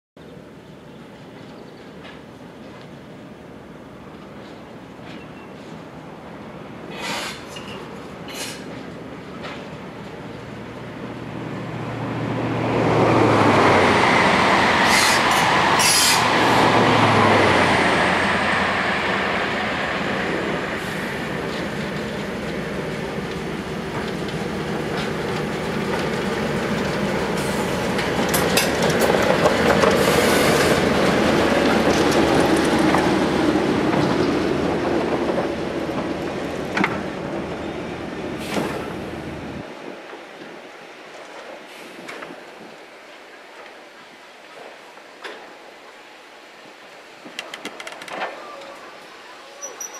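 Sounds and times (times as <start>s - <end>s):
train wheels squealing and clanking: 6.9s - 8.8s, 14.8s - 16.4s, 49.5s - 49.9s.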